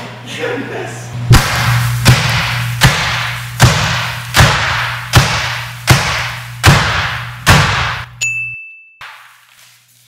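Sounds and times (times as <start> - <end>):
low hum: 1.1 - 8.2.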